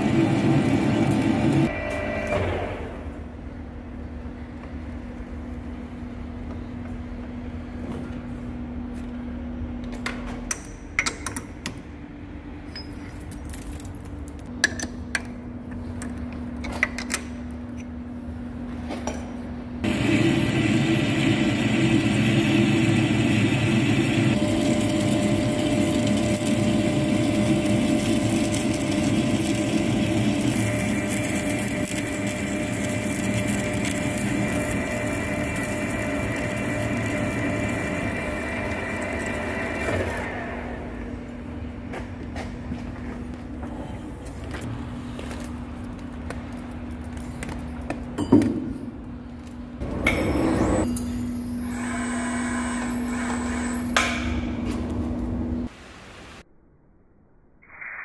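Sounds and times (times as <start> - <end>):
lathe humming: 19.8 - 40.9.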